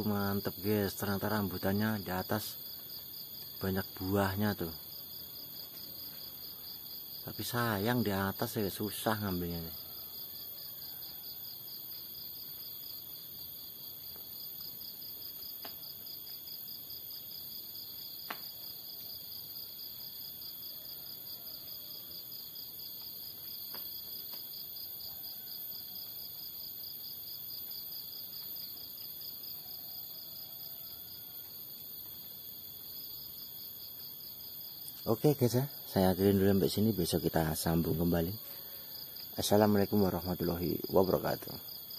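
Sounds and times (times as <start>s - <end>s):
insects trilling: 0.0s - 41.9s.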